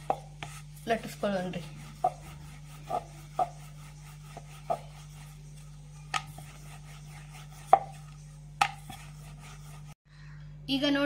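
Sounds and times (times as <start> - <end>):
steady low hum: 0.0 - 11.0
rolling pin knocking on board: 2.9 - 3.7, 6.1 - 6.6, 7.5 - 9.1.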